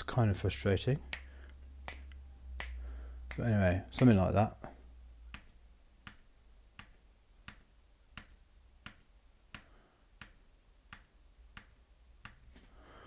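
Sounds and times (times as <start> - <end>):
steady evenly spaced clicks: 5.3 - 12.5.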